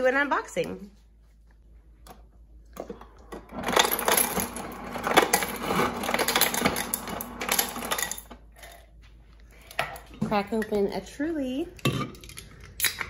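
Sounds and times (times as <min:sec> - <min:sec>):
objects rattling and scraping: 0:02.8 - 0:10.8.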